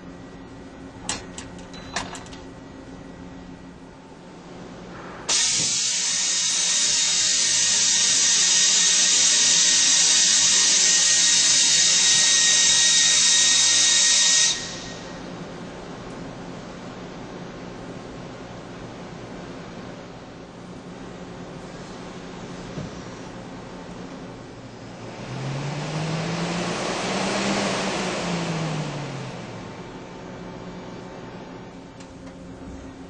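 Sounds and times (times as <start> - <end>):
low machine hum: 0.0 - 5.3, 14.6 - 26.7, 27.9 - 33.0
loud steady hiss with whine: 3.7 - 17.0.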